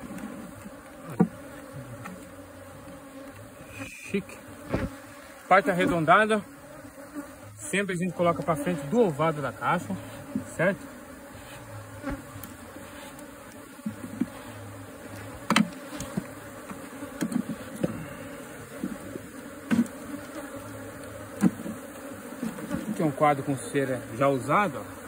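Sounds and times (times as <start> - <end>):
hive frames knocking and clicking: 0.0 - 3.5, 4.6 - 5.1, 12.0 - 14.4, 15.0 - 18.0, 18.7 - 23.2
honeybees buzzing: 0.0 - 25.0.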